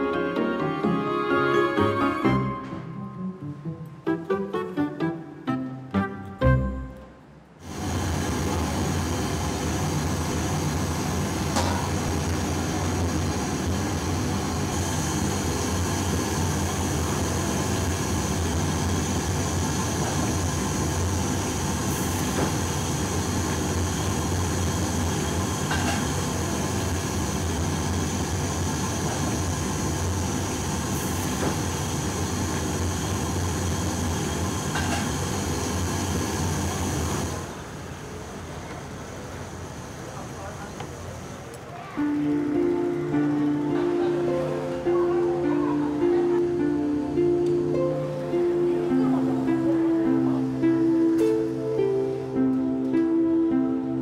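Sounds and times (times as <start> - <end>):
steamer pot hissing: 7.6 - 37.8.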